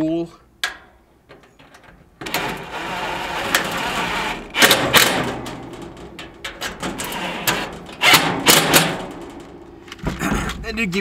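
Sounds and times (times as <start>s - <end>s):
cordless drill driving fasteners: 2.2s - 5.2s, 6.9s - 8.9s
metal knocks: 4.5s - 10.6s.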